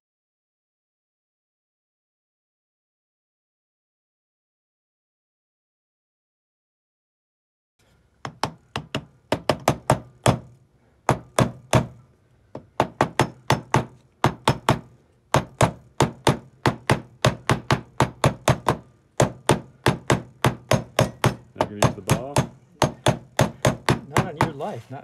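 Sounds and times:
hammer tapping a drift: 8.2 - 24.8.

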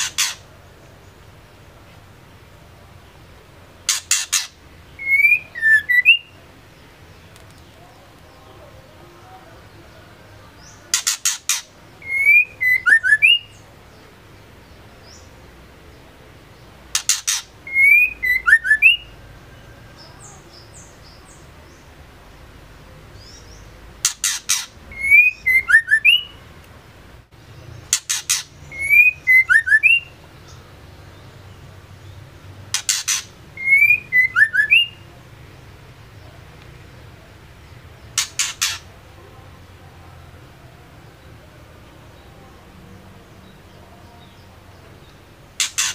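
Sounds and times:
bird calling with rattles and whistles: 0.0 - 0.4, 3.8 - 6.4, 10.9 - 13.6, 16.9 - 19.1, 24.0 - 26.4, 27.9 - 30.1, 32.7 - 35.0, 38.1 - 38.9, 45.5 - 45.9.

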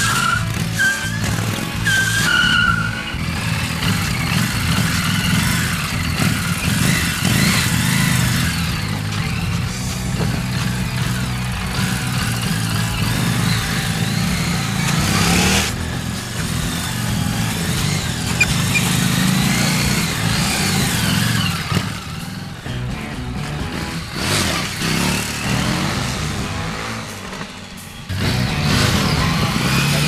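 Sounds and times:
motorcycle engine revving: 0.0 - 30.0.

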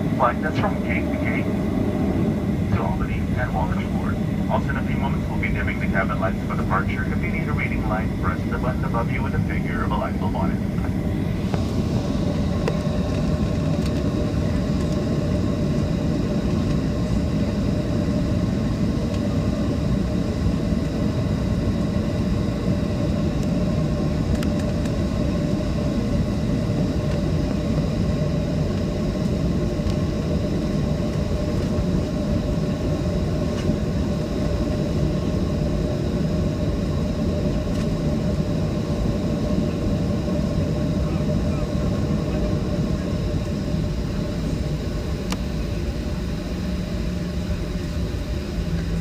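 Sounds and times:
faint steady tones: 0.0 - 12.8
jet engines idling rumble: 0.0 - 49.0.

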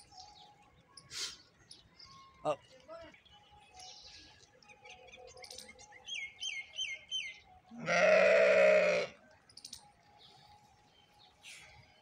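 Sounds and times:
small birds chirping: 0.0 - 8.3
loud livestock call: 7.8 - 9.2.

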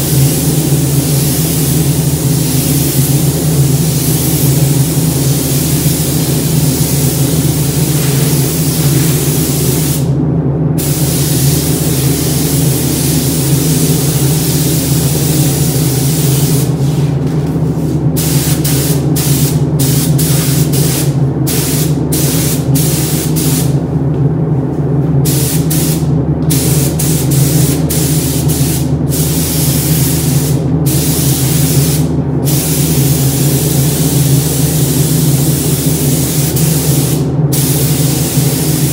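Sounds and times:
steady low hum: 0.0 - 38.9
paint spray gun hissing: 25.3 - 38.9.

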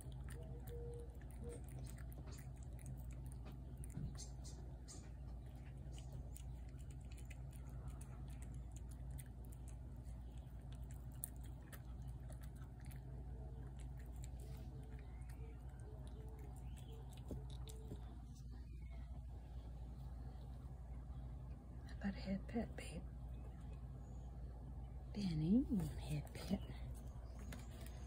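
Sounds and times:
cat chewing wet food: 0.0 - 18.6.

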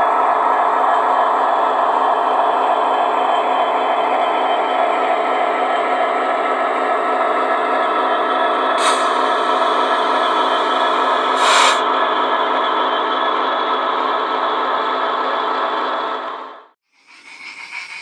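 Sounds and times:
model locomotive hum and whir: 0.0 - 18.0
short hisses: 11.4 - 11.8.

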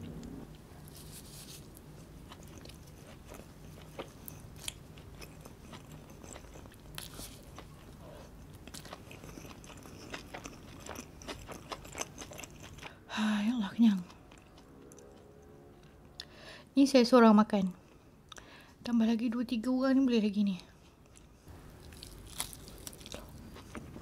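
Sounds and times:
chewing and biting food: 2.2 - 12.9, 21.1 - 24.0.

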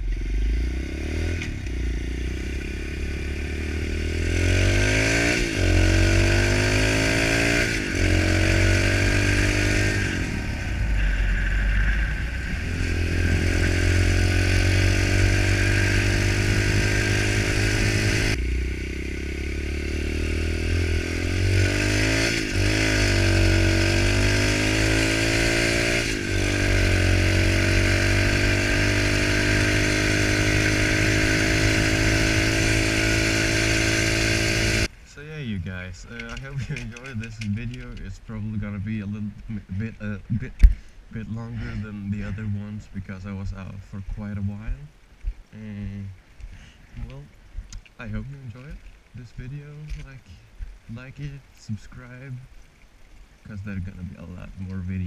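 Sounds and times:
motorbike engine revving: 0.0 - 34.9
wind noise: 6.9 - 18.4.

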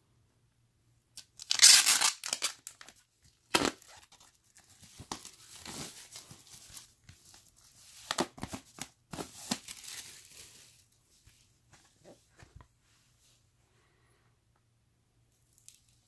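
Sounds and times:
plastic wrap tearing and crinkling: 1.2 - 7.0, 7.9 - 10.9.

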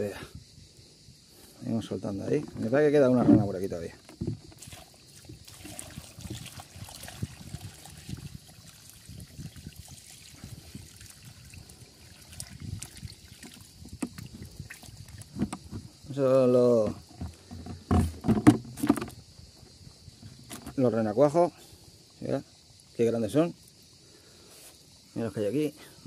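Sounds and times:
water splashing and trickling: 2.2 - 21.4.

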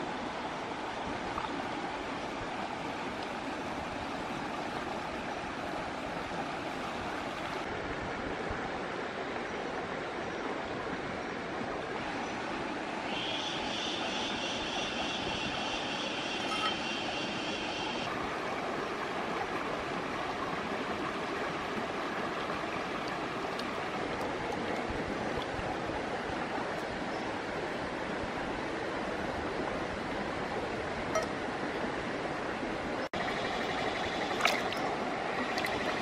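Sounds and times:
rocky stream splashing: 18.1 - 28.3, 34.0 - 36.0.

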